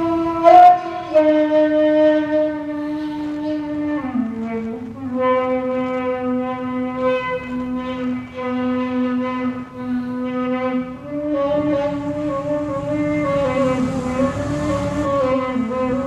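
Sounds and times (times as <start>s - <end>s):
reedy wind instrument long note: 5.1s - 16.0s.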